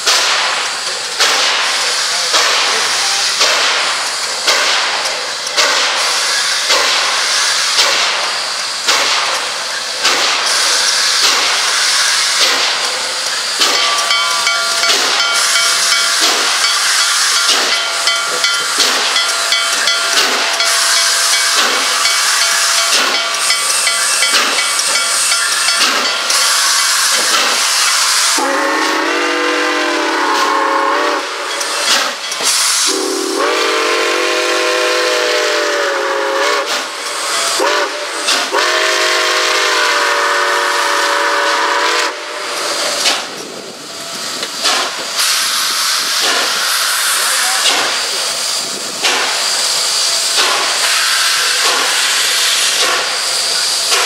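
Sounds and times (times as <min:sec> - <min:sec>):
steam hissing: 0:00.0 - 0:54.0
steam locomotive chuffing: 0:00.0 - 0:54.0
bell ringing: 0:13.8 - 0:28.2
train chime whistle: 0:13.8 - 0:31.7, 0:32.5 - 0:36.7, 0:37.3 - 0:42.7.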